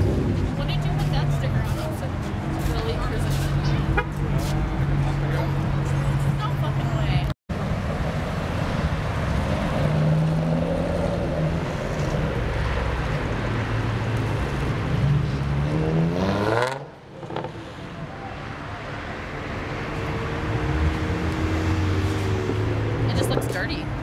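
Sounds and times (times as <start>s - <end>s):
car engines pulling away: 0.0s - 24.0s
car engine revving up: 8.2s - 17.8s.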